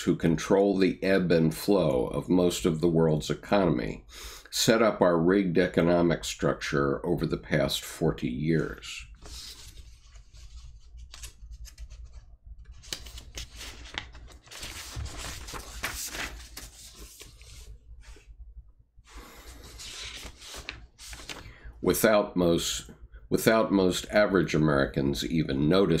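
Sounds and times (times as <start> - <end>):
paper rustling and rubbing: 9.0 - 18.3, 19.3 - 21.5.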